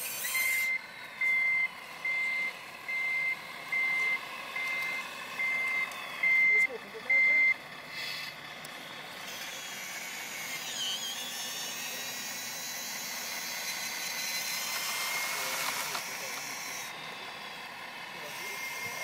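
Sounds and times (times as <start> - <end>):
small electric motors whining: 0.0 - 19.0.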